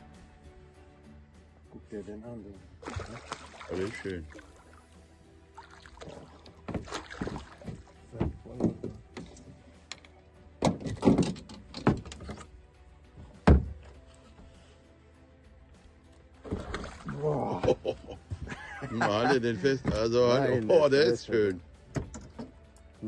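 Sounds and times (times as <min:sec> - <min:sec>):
fish splashing at water surface: 0:02.8 - 0:04.9, 0:05.5 - 0:08.1, 0:16.4 - 0:17.9
knocks against boat hull: 0:06.6 - 0:09.3, 0:13.4 - 0:13.8.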